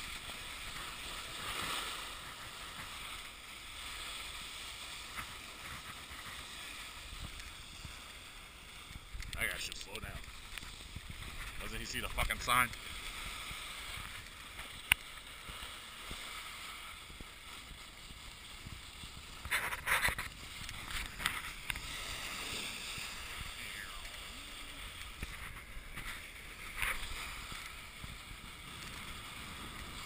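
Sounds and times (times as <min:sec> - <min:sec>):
snowboard edge scrapes: 0:00.0 - 0:30.0
snowboard hissing on snow: 0:19.3 - 0:28.3.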